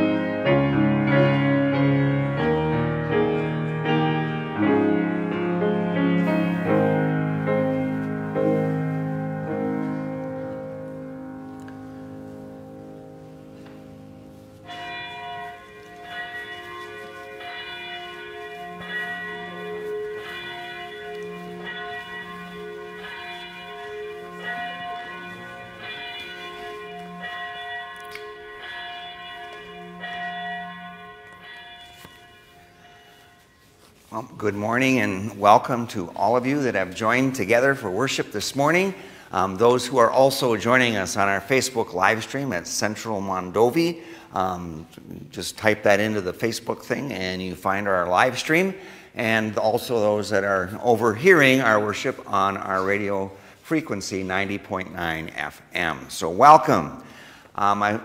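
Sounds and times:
piano chords: 0.0 - 43.6
church bell tolling: 0.0 - 58.0.

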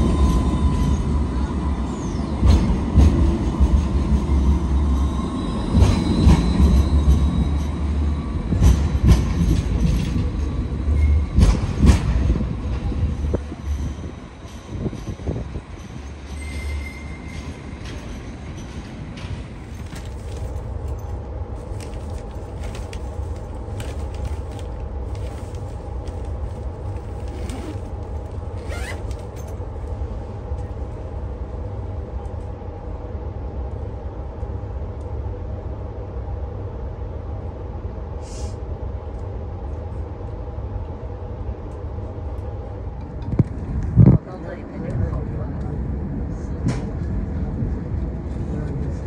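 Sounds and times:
train carriage rumble and hum: 0.0 - 49.0
short hiss: 38.2 - 38.6.

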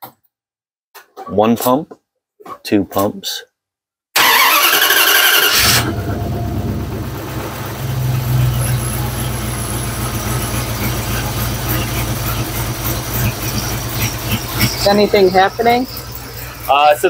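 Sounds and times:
engine idling: 4.2 - 17.0.

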